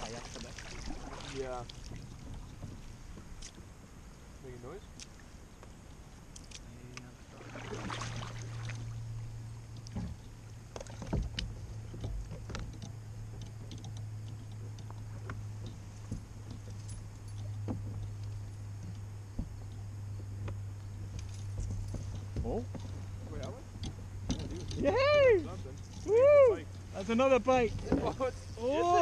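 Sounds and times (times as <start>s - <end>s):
low hum: 0.0s - 29.0s
gear knocking on kayak hull: 9.8s - 25.0s.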